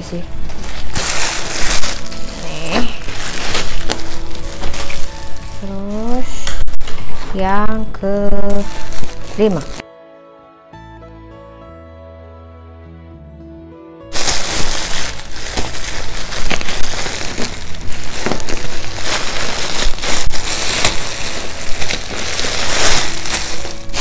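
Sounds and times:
plastic packaging crinkling: 0.0s - 9.8s, 14.1s - 24.0s.

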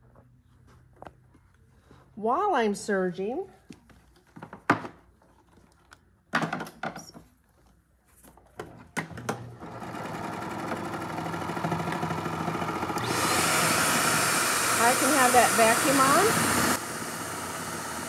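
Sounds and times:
serger machine stitching: 9.4s - 18.0s.

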